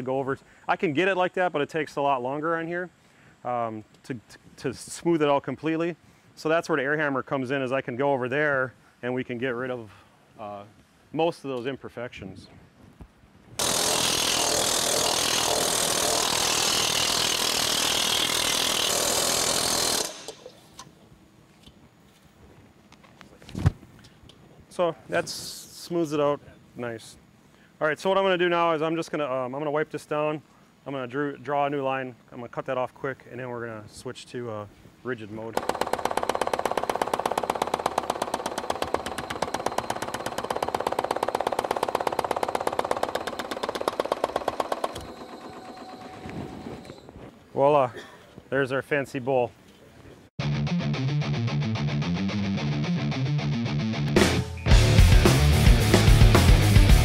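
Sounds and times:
air hammer on sheet metal: 13.6s - 20.5s, 35.6s - 45.6s.

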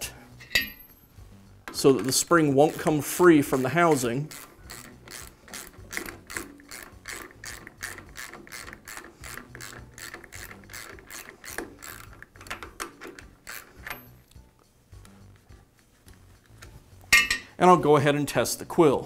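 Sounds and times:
ratchet wrench clicking: 3.6s - 14.2s.

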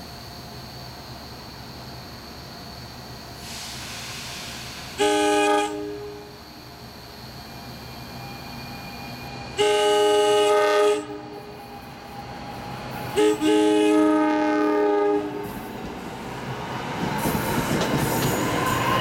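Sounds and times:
train rumble and wheel noise: 0.0s - 19.0s
train horn blasts: 5.0s - 6.4s, 9.6s - 11.5s, 13.1s - 15.5s.

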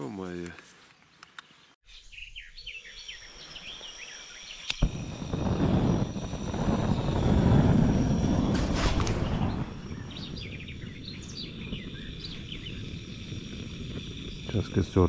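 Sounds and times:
birds chirping: 0.0s - 15.0s
click: 1.2s - 1.5s, 4.6s - 4.9s
loud low rumbling: 4.8s - 15.0s.

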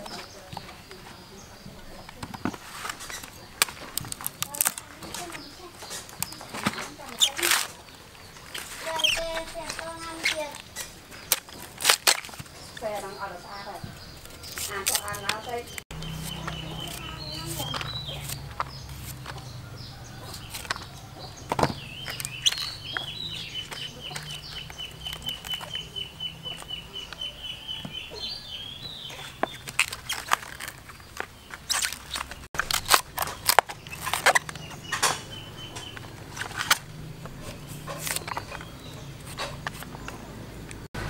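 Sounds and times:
bird peeping: 4.4s - 11.6s, 12.5s - 40.9s
knife chopping bamboo: 14.5s - 19.6s.

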